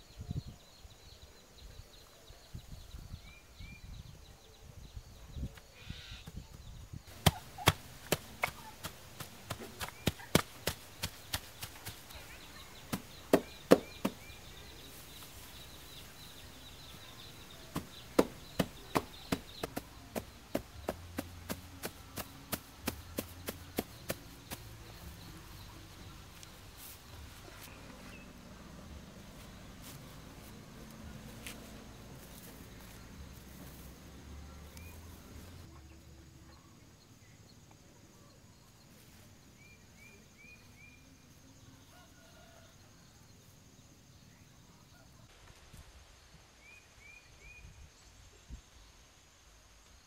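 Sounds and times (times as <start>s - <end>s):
hand slapping soil: 7.1s - 15.5s, 17.6s - 25.5s.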